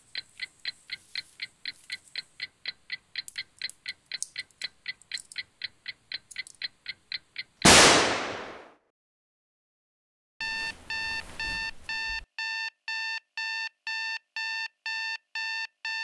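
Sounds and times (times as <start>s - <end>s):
alarm clock ticking: 0.1s - 7.6s, 10.4s - 16.0s
pistol shot: 7.7s - 8.8s.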